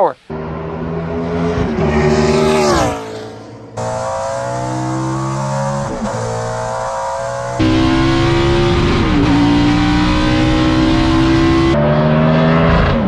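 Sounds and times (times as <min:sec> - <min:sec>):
race car passing by: 0:00.3 - 0:05.7
in-car engine at high revs: 0:00.3 - 0:13.0.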